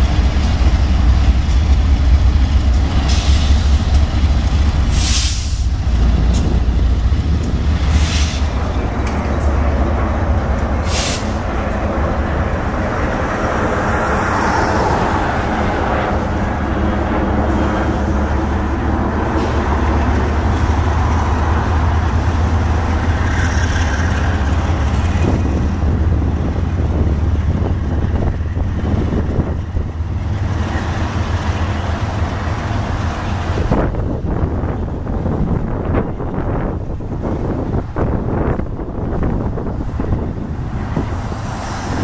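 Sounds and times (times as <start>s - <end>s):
diesel locomotives rumbling: 0.0s - 42.0s
brief high hiss: 10.8s - 11.4s.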